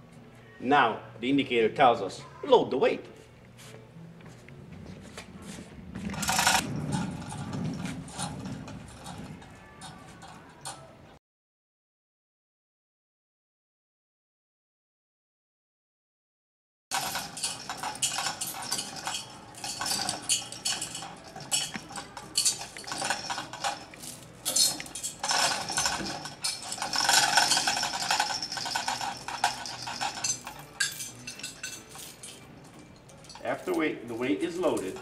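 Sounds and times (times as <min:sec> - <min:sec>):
hoist chain rattling: 0:06.1 - 0:10.9, 0:16.9 - 0:35.0.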